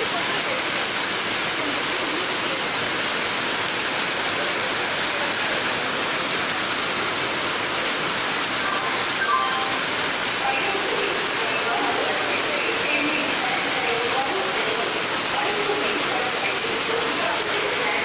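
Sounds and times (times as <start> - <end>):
heavy rain on a roof: 0.0 - 18.0.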